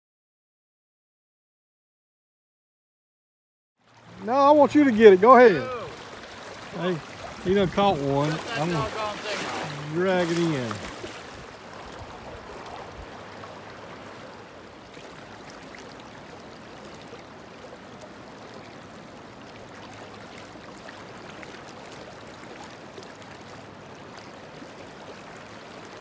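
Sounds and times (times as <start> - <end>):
river current rushing: 3.8 - 26.0
small water splashes: 3.8 - 26.0.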